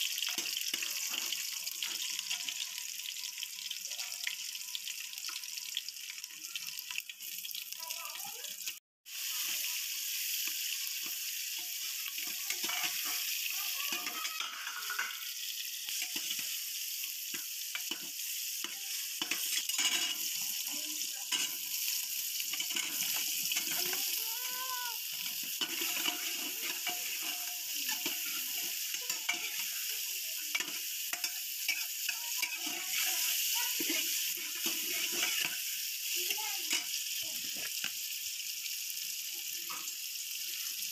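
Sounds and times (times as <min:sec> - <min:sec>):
potatoes sizzling in hot oil: 0:00.0 - 0:40.9
metal ladle scraping a pot: 0:19.2 - 0:20.4.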